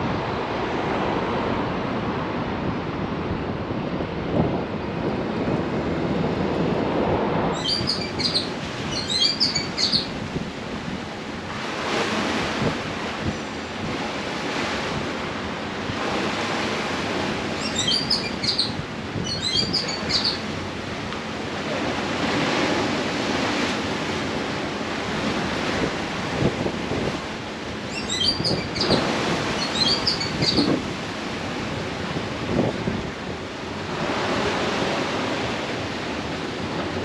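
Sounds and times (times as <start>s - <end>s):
wind on microphone: 0.0s - 37.0s
bird chirping: 7.6s - 10.1s, 17.6s - 20.4s, 27.9s - 29.0s, 29.6s - 30.7s
waves washing against rocks: 10.1s - 17.7s.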